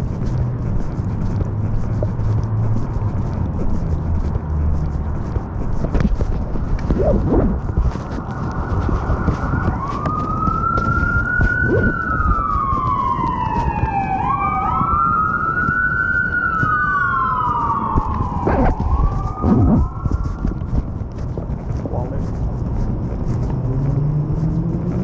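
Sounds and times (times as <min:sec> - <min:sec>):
heavy low rumble: 0:00.0 - 0:14.3, 0:16.6 - 0:25.0
emergency siren wailing: 0:08.3 - 0:20.6
second siren tone: 0:09.6 - 0:20.4.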